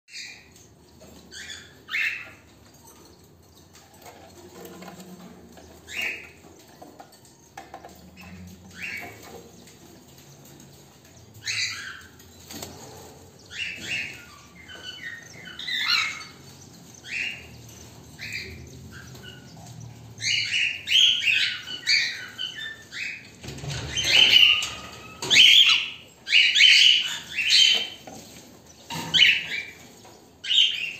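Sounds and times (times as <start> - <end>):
cockatiels chirping: 0.1 - 2.5, 13.5 - 16.4, 18.2 - 23.2, 24.1 - 28.1, 30.4 - 30.9.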